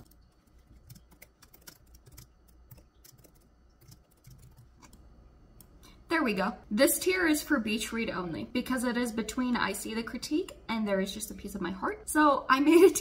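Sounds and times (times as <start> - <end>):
faint typing on a keyboard: 0.0 - 6.0.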